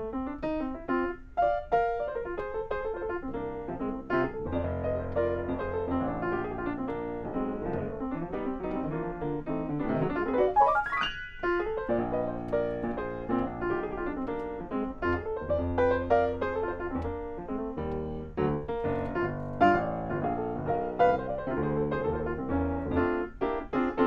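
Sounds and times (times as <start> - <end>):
solo grand piano: 0.0 - 24.0.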